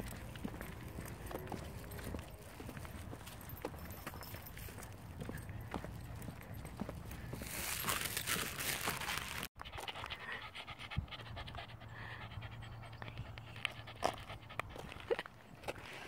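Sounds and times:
dog panting: 9.6s - 15.1s.

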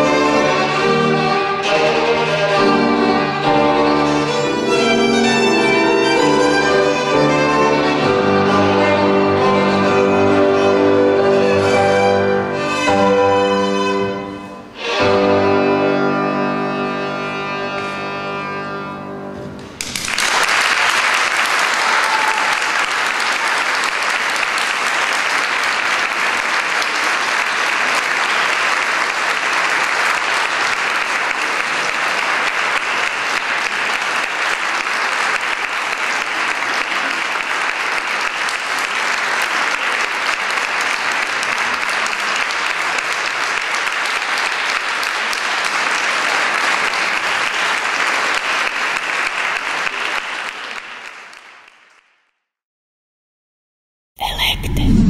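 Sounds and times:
violin piece: 0.0s - 19.8s
audience applause: 19.8s - 52.2s.

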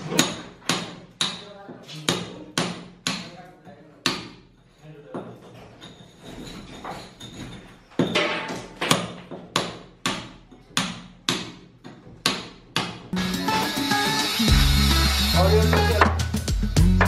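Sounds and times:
hammer striking metal chisel: 0.0s - 3.4s, 4.0s - 4.5s, 8.0s - 13.1s
music: 13.1s - 17.0s.

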